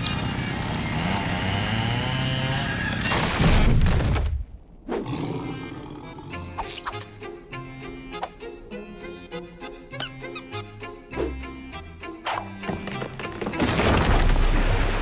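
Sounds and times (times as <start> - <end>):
cartoon music: 6.3 - 12.6.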